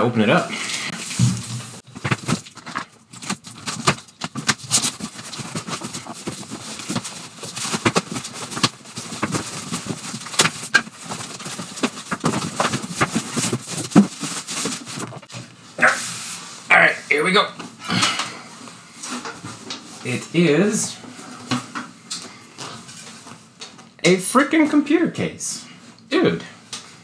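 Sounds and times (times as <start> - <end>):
cardboard crinkling and scraping: 0.9 - 16.6
knocks and clatters: 1.2 - 15.3.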